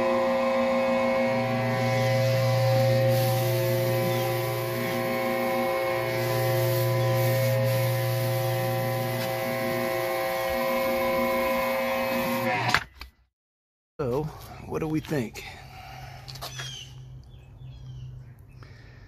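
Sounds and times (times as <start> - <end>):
electric pressure washer humming: 0.0 - 12.7
surface cleaner spraying concrete: 1.5 - 12.5.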